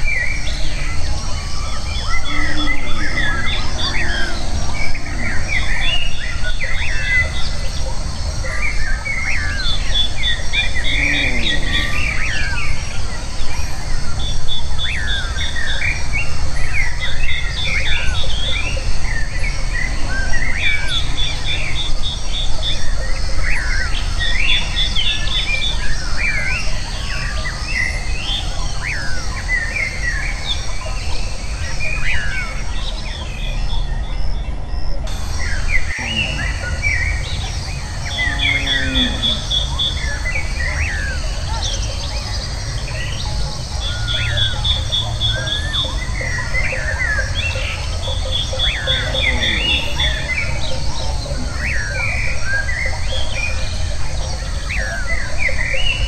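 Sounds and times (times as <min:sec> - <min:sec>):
birds chirping and calling: 0:00.0 - 0:56.0
steady low rumble: 0:01.2 - 0:08.1.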